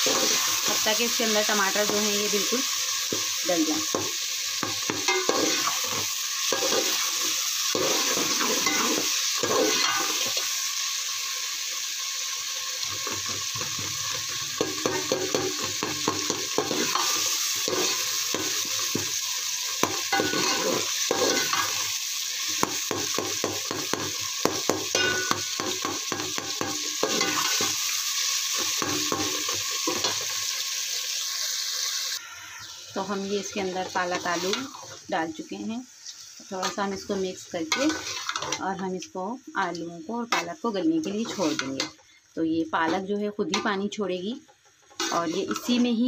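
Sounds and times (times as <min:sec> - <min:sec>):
sizzling in hot oil: 0:00.0 - 0:46.0
spoon scraping metal pot: 0:44.9 - 0:45.8.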